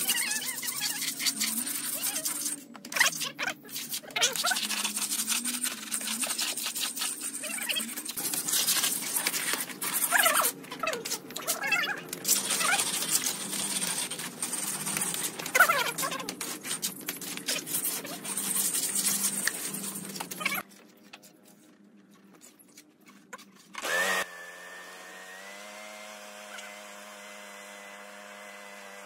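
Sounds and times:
squeaky trowel scrapes: 0.0 - 23.9.

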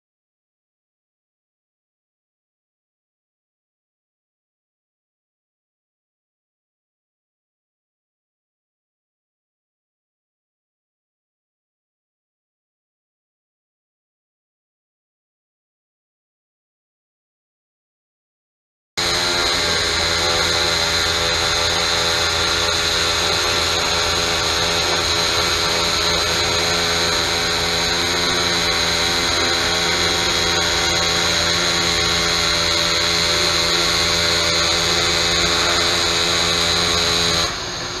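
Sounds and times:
high whine: 19.0 - 38.0
welding arc buzzing: 19.0 - 38.0.

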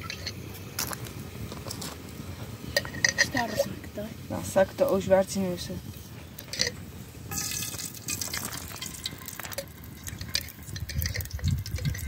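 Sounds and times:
utensil clinking in a pot: 0.0 - 0.4, 2.7 - 3.7, 6.4 - 12.0.

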